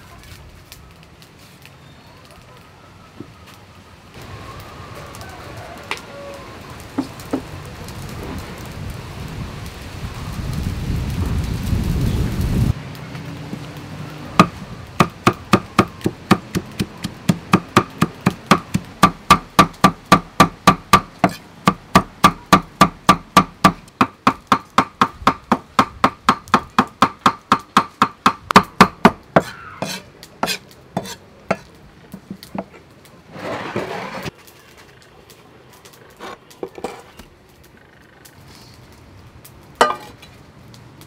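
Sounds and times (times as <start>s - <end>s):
cleaver chopping on block: 14.4s - 31.6s
scraping on chopping block: 29.4s - 31.7s.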